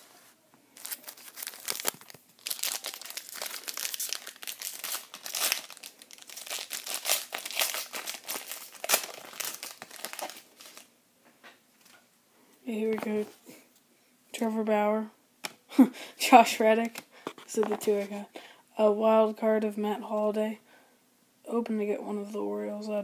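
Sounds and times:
wrapper crinkling as torn open: 0:00.8 - 0:10.9.

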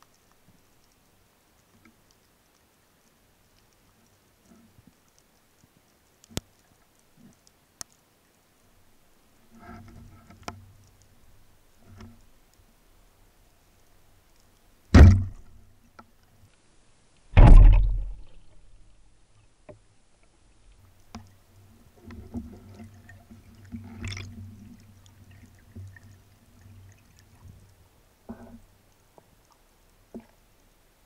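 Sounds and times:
small clicks: 0:00.0 - 0:08.5, 0:09.5 - 0:12.7
low rumbling water noise: 0:00.0 - 0:31.0
underwater speargun thuds: 0:14.9 - 0:15.5, 0:17.4 - 0:18.4.

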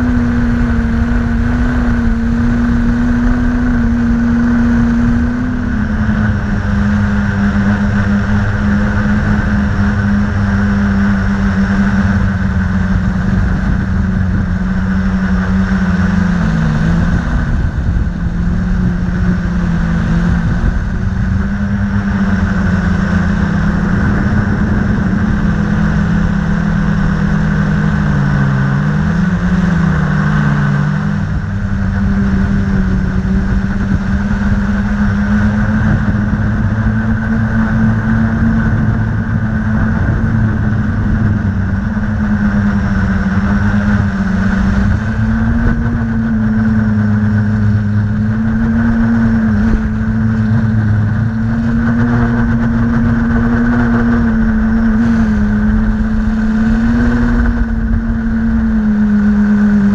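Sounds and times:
drone motors humming: 0:00.0 - 0:59.9.

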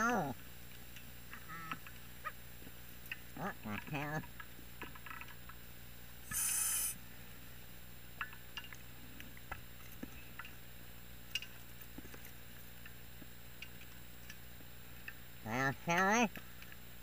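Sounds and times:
hissing gas underwater: 0:06.3 - 0:07.0
faint clicks and ticks: 0:08.1 - 0:15.3.

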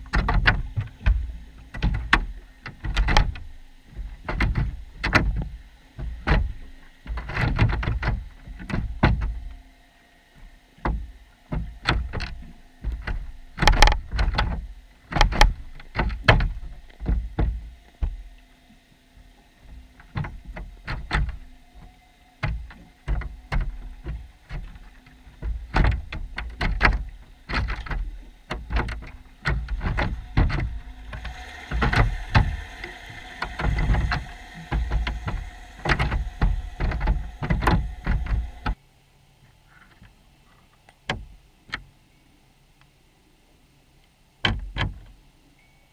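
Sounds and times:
underwater knocks and clicks: 0:00.0 - 0:09.6, 0:10.8 - 0:18.3, 0:19.7 - 0:38.8
faint steady hum: 0:00.0 - 0:45.9.

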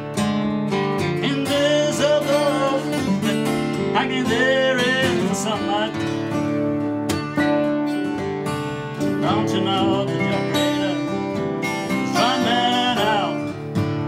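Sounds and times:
acoustic guitars playing: 0:00.0 - 0:14.0
man singing: 0:01.0 - 0:06.6, 0:09.0 - 0:13.8.

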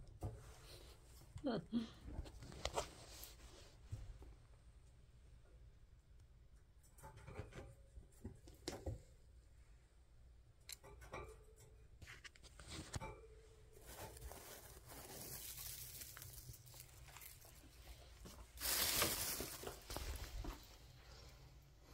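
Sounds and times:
rabbits rustling in dry hay: 0:13.8 - 0:21.3.

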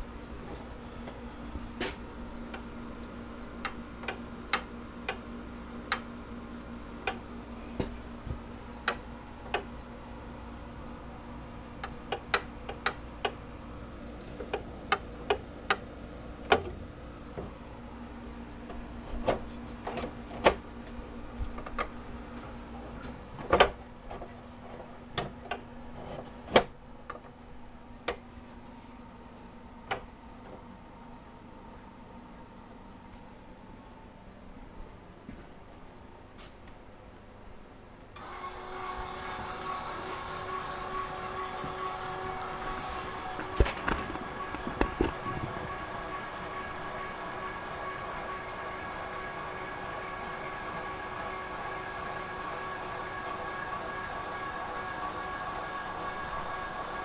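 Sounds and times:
small electric motor humming: 0:38.2 - 0:57.0.

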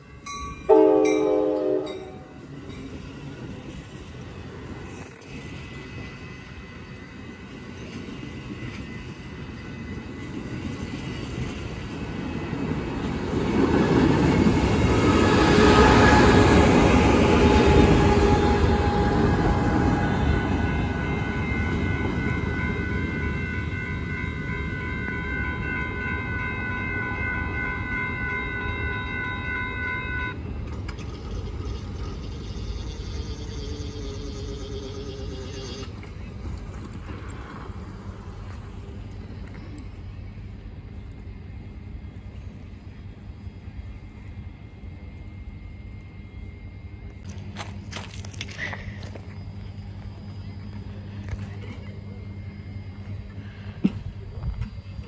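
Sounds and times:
level crossing warning bells: 0:00.0 - 0:07.4, 0:17.6 - 0:30.5
train wheels on rails: 0:00.0 - 0:29.4, 0:34.0 - 0:55.0
diesel locomotive passing: 0:00.0 - 0:55.0
train horn blast: 0:00.4 - 0:04.7, 0:17.4 - 0:23.0.

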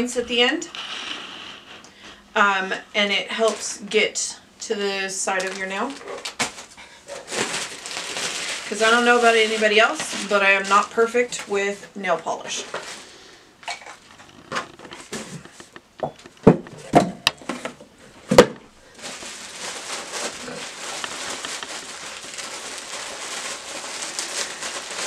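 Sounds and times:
plastic bag crinkling: 0:05.1 - 0:25.0.

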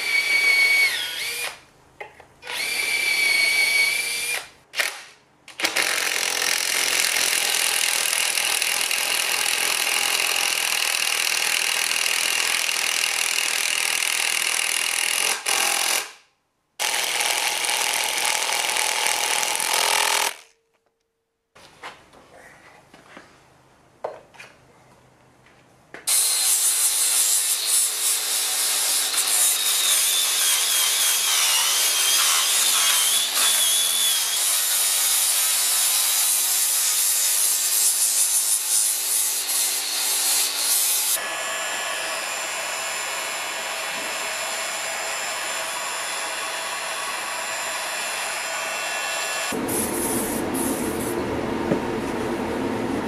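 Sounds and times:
angle grinder grinding steel: 0:26.1 - 0:48.7.

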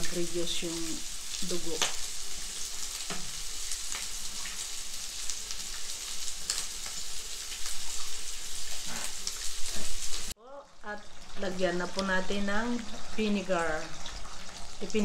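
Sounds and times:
stew sizzling: 0:00.0 - 0:15.0
wooden spoon scraping a pot: 0:08.6 - 0:10.0.

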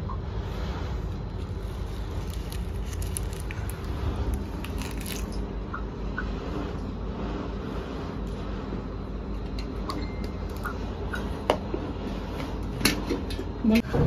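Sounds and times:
steady low hum: 0:00.0 - 0:14.0
leaf and nut crunching when chewed: 0:01.4 - 0:05.4.

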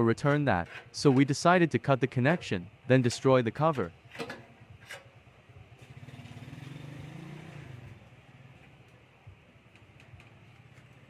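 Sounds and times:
vehicle engine passing by: 0:05.8 - 0:08.6.

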